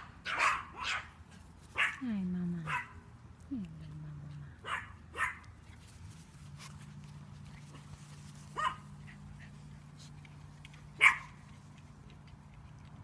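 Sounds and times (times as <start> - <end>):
dog barking: 0.0 - 1.1, 1.8 - 2.0, 2.7 - 2.9, 4.6 - 5.4, 8.6 - 8.8, 11.0 - 11.4.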